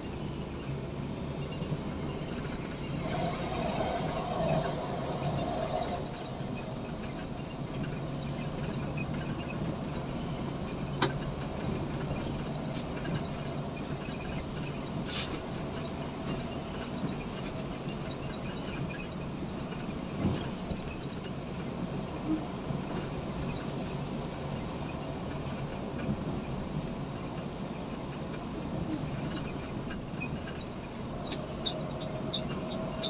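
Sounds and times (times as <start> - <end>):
bus engine drone: 0.0 - 33.0
road rumble: 0.0 - 33.0
brief hiss: 3.0 - 7.0.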